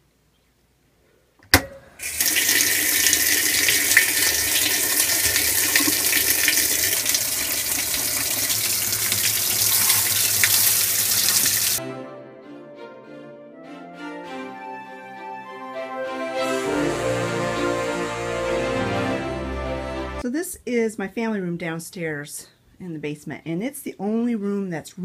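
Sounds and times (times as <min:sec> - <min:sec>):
water gushing into washer tub: 0:02.0 - 0:11.8
music: 0:11.8 - 0:20.2.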